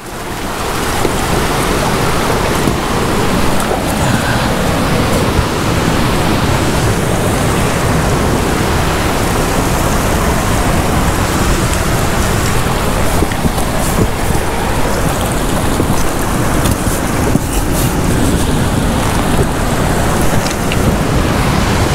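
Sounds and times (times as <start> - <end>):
ocean surf over rocks: 0.0 - 21.9.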